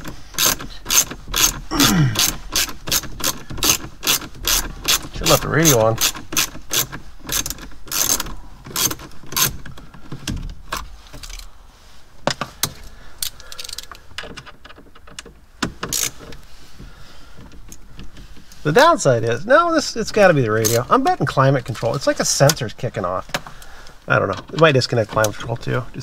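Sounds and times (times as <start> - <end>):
socket ratchet clicking: 0.0 - 1.6, 2.2 - 9.7, 15.8 - 16.2.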